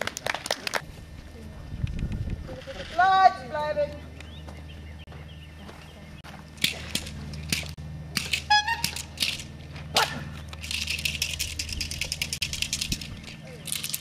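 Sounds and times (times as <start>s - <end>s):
steady low hum: 0.0s - 14.0s
fast rattle of quick clicks: 10.5s - 14.0s
sharp clicks and cracks: 10.5s - 14.0s.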